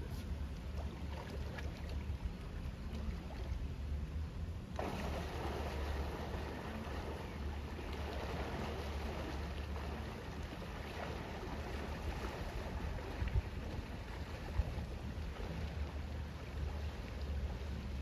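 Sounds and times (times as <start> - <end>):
steady rumble: 0.0 - 18.0
water gently lapping: 0.0 - 18.0
wind buffeting microphone: 12.9 - 15.3.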